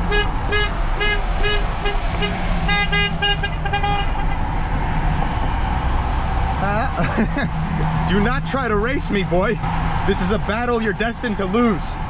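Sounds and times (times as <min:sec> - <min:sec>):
vehicle horns beeping: 0:00.0 - 0:04.4
van engine hum: 0:00.0 - 0:12.0.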